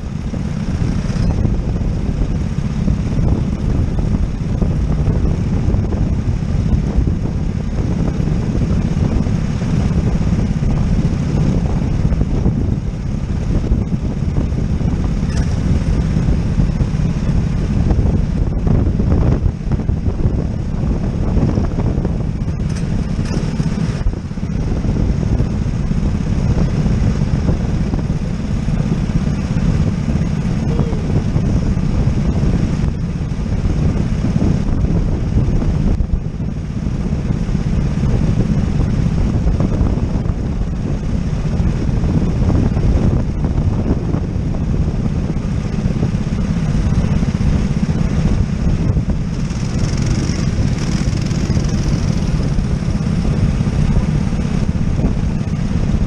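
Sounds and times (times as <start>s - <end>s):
go-kart engines idling: 22.4s - 32.7s, 45.5s - 56.0s.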